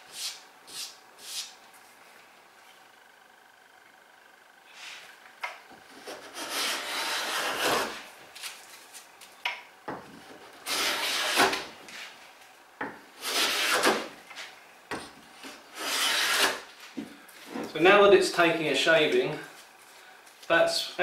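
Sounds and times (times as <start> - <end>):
hand plane rasping along wood: 6.0 - 8.0, 10.6 - 11.6, 13.2 - 14.1, 15.7 - 16.7.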